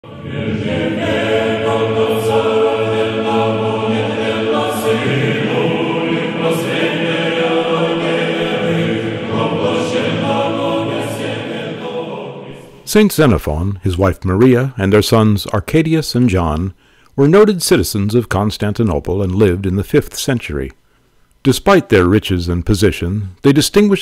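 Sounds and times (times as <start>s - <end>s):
choir chanting long notes: 0.0s - 12.9s.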